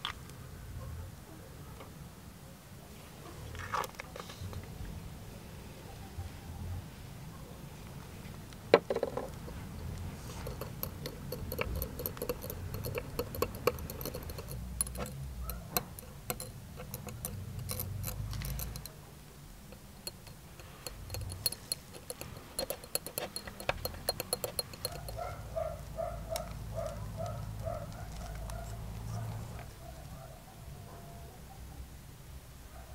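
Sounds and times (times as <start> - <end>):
metal rod clinking against glass: 8.9 - 19.1, 19.7 - 27.8.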